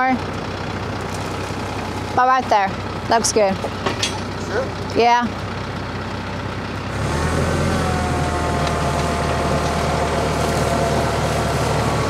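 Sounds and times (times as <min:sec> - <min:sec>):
tractor diesel engine running: 0:00.0 - 0:12.0
auger whine: 0:06.9 - 0:12.0.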